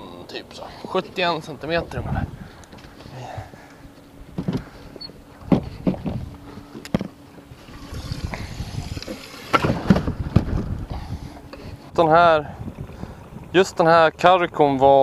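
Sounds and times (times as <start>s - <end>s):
faint motor hum: 0.0s - 15.0s
wind: 0.0s - 15.0s.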